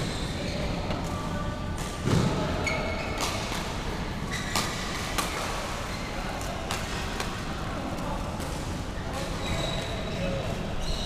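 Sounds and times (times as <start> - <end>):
hubbub of busy hall: 0.0 - 11.0
shoes squeaking on court: 2.5 - 3.6, 4.3 - 6.5, 9.2 - 11.0
racket hitting shuttlecock: 4.4 - 5.7.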